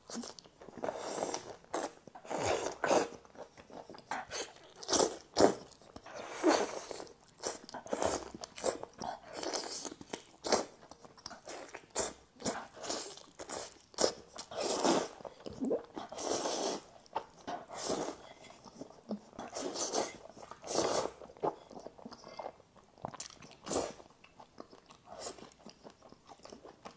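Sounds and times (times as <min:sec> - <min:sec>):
slurping noodles: 0:00.1 - 0:03.2, 0:11.5 - 0:16.9, 0:17.6 - 0:18.2, 0:19.4 - 0:21.2.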